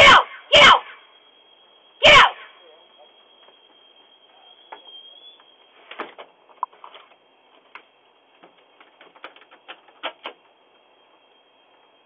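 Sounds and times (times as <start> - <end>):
sharp clicks and knocks: 5.9 - 10.5.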